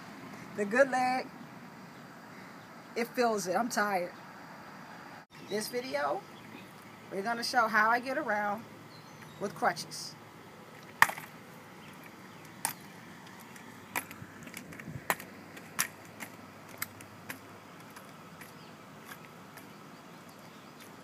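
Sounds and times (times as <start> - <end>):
crutches tapping on concrete: 10.8 - 21.0.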